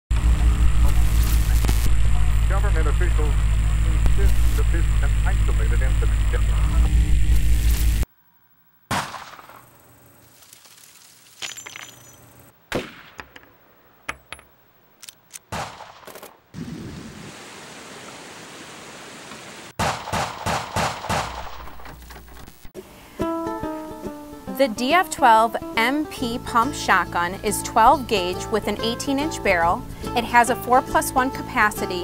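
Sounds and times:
gunshots: 8.9 - 9.8, 12.7 - 13.4, 15.4 - 16.8, 19.8 - 21.8.

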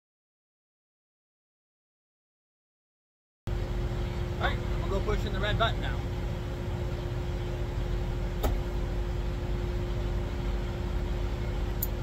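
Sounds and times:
diesel truck engine idling: 3.5 - 12.0.

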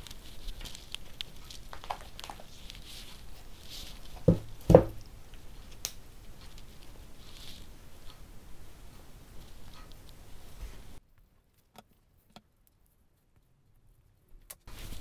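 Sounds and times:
faint rustling: 0.0 - 15.0
soft knocks: 4.2 - 5.0.

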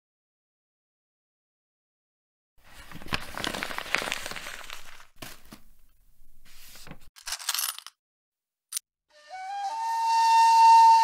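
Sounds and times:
old paper crinkling: 2.6 - 7.6.

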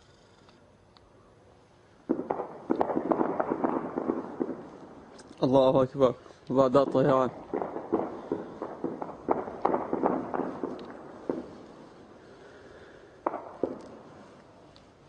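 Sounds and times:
heavy gunfire: 2.1 - 4.8, 6.7 - 14.1.

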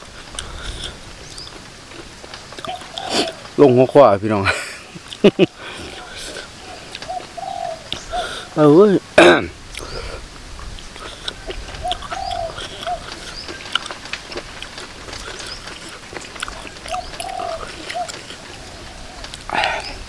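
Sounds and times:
light clicks and crunches: 0.1 - 3.6, 10.6 - 19.9
dove cooing: 2.3 - 3.6, 4.9 - 8.9, 9.7 - 20.0.

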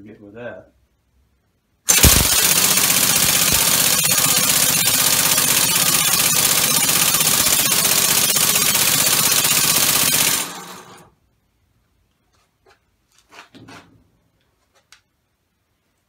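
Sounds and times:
compressed-air engine chuffing: 1.9 - 11.0.

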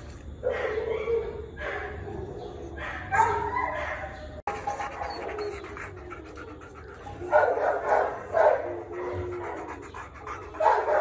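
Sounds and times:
dog panting: 4.5 - 11.0.

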